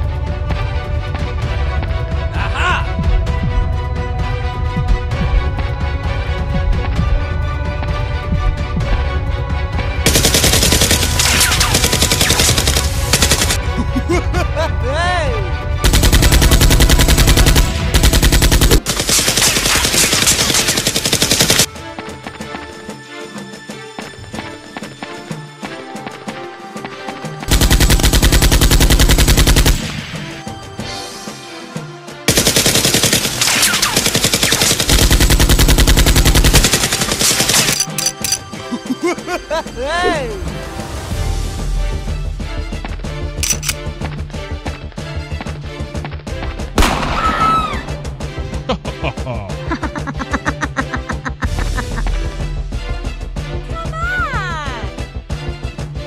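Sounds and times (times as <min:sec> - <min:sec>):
background music: 0:00.0 - 0:56.0
automatic gunfire sound effects: 0:15.8 - 0:21.7, 0:32.3 - 0:37.9.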